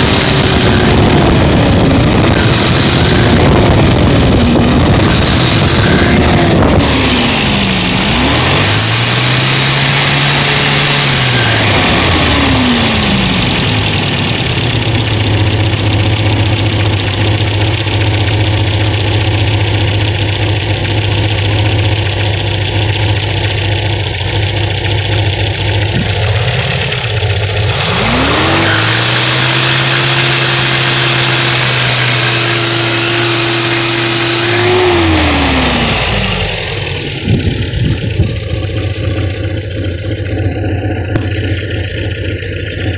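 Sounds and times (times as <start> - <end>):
car engine revving: 0.0 - 42.9
engine whirring: 0.0 - 42.9
high screech: 4.6 - 7.4, 27.7 - 40.5.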